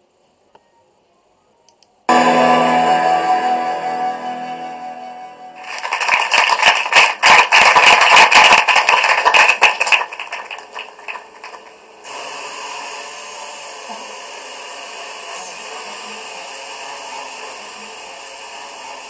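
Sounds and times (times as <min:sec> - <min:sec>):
audience applauding through speakers: 0:05.6 - 0:12.0.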